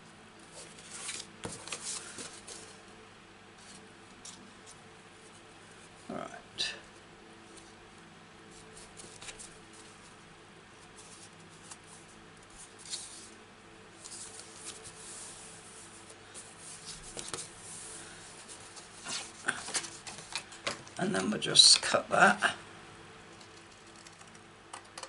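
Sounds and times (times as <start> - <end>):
faint steady hum: 0.0 - 25.0
cardstock rustling and scraping: 0.5 - 2.8, 8.5 - 10.2, 10.8 - 13.4, 14.0 - 21.9.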